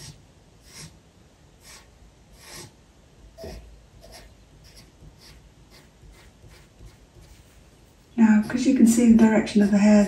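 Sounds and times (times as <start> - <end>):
pencil strokes on paper: 1.6 - 2.7, 3.4 - 10.0.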